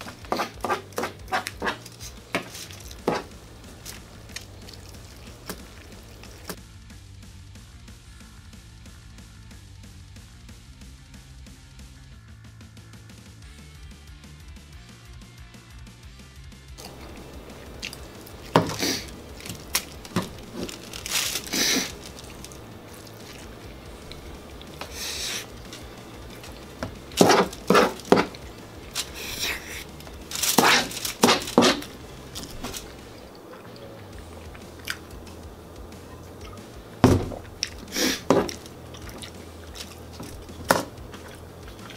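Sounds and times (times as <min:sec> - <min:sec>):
aluminium foil crinkling: 0:00.0 - 0:06.6, 0:16.8 - 0:35.5, 0:37.0 - 0:41.9.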